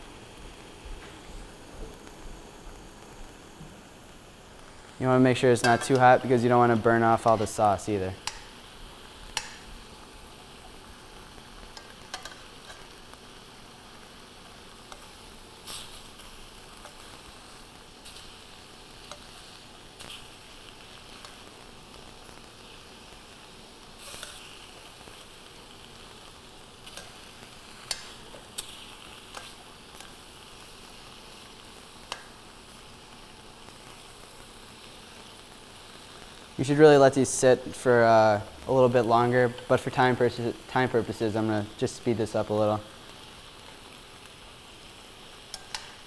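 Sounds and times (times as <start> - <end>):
tofu sizzling in a pan: 0.0 - 46.0
tongs clicking against pan: 8.2 - 8.5, 9.3 - 9.6, 11.7 - 12.9, 19.0 - 19.4, 26.8 - 27.2, 27.8 - 28.7, 29.3 - 30.2, 32.1 - 32.3, 45.5 - 46.0.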